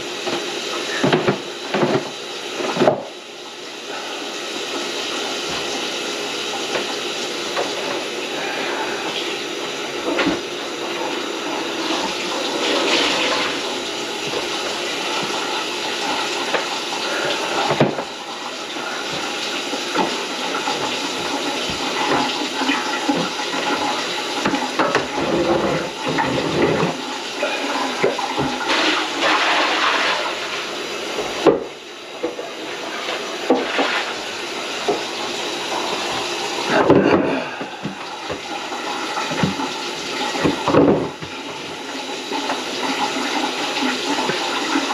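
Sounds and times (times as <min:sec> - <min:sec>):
water running into sink: 0:00.0 - 0:44.9
dishes knocking and clattering: 0:01.0 - 0:03.1, 0:17.7 - 0:18.1, 0:36.7 - 0:38.4, 0:40.4 - 0:41.4.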